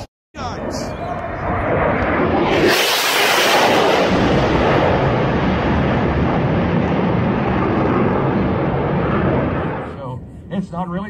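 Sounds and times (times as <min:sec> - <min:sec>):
fighter jet passing overhead: 0:00.4 - 0:11.0.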